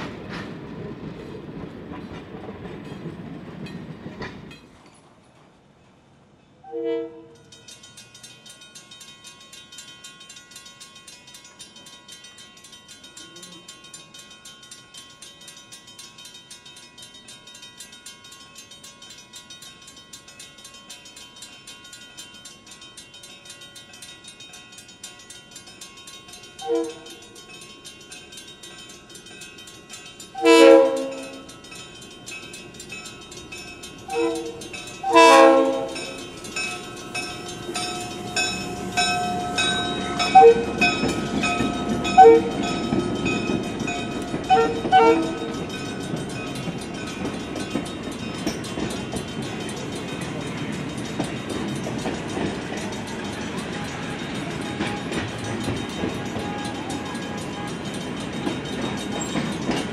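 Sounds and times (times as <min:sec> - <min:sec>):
crossing bell ringing: 0:06.5 - 0:59.9
train horn blasts: 0:06.6 - 0:07.4, 0:26.6 - 0:27.2, 0:30.4 - 0:31.5, 0:34.1 - 0:36.2, 0:38.4 - 0:40.9, 0:42.0 - 0:42.7, 0:44.5 - 0:45.5.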